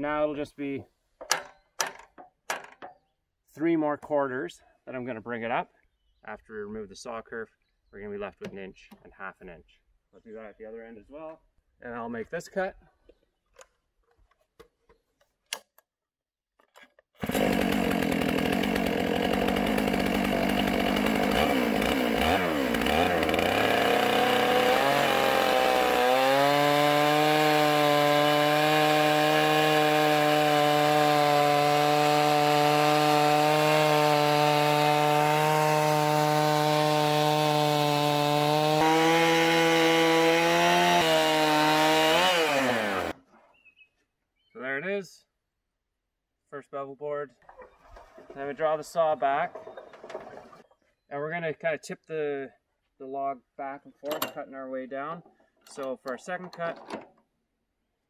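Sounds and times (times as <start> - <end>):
chainsaw cutting log: 17.1 - 43.2.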